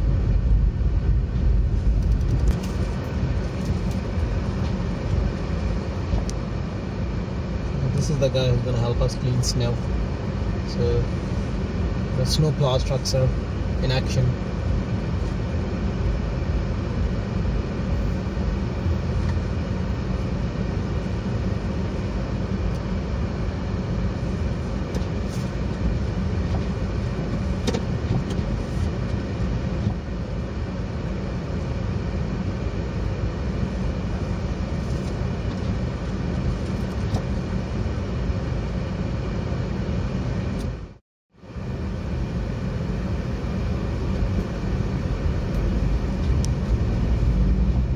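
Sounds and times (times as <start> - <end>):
car engine and tyres rumbling: 0.0 - 47.9.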